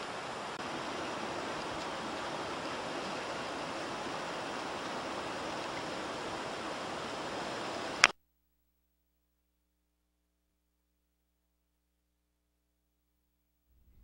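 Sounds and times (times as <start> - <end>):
steady background hiss: 0.0 - 8.1.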